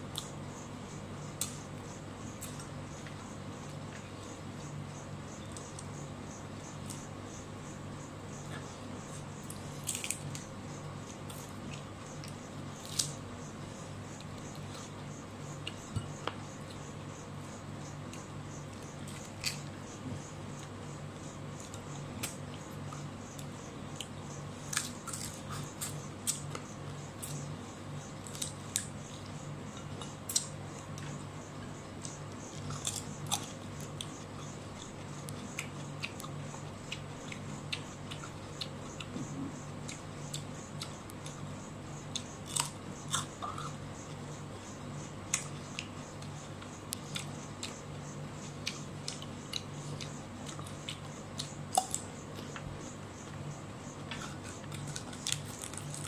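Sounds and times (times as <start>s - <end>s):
steady low hum: 0.0s - 56.0s
person crunching and chewing food: 8.5s - 13.2s, 18.1s - 19.8s, 23.4s - 27.4s, 28.2s - 31.2s, 32.0s - 41.4s, 42.1s - 43.8s, 45.3s - 52.7s, 54.1s - 56.0s.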